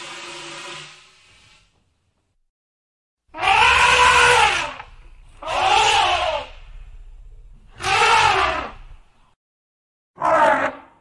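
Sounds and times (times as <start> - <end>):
elephant trumpeting: 3.3 - 6.6, 7.7 - 8.9, 10.2 - 11.0.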